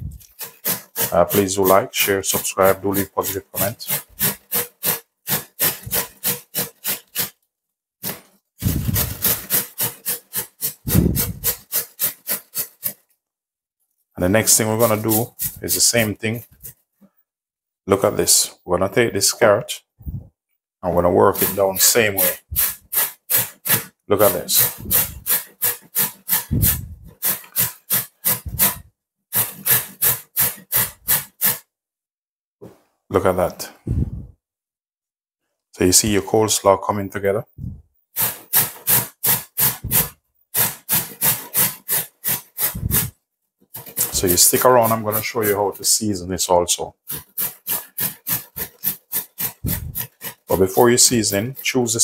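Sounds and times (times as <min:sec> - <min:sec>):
cabbage grated on metal grater: 0:00.0 - 0:07.4, 0:08.0 - 0:13.0, 0:14.4 - 0:16.2, 0:21.1 - 0:28.8, 0:29.4 - 0:31.6, 0:38.2 - 0:43.1, 0:43.8 - 0:46.1, 0:47.0 - 0:52.0.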